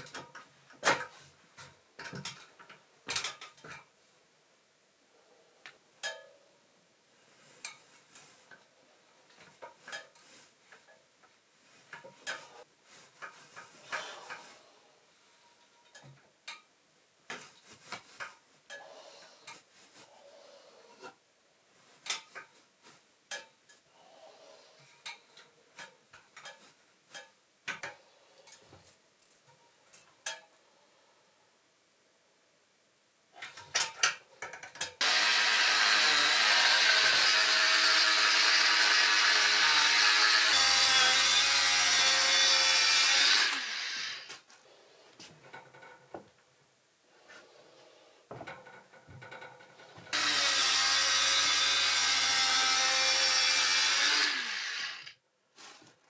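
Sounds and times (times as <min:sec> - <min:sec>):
power tool running: 0:35.0 - 0:44.3, 0:50.1 - 0:55.2.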